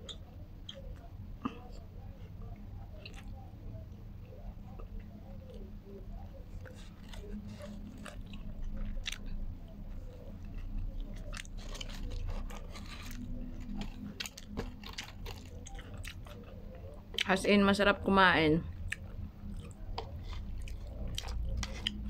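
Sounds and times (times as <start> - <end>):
chewing and biting food: 0.0 - 17.4, 18.6 - 22.0
steady low hum: 0.0 - 22.0.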